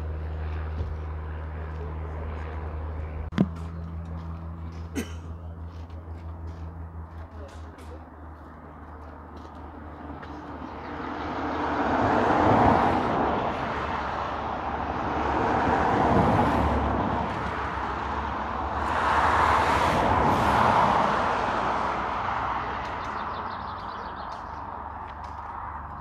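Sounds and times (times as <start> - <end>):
light aircraft propeller engine: 0.0 - 19.3.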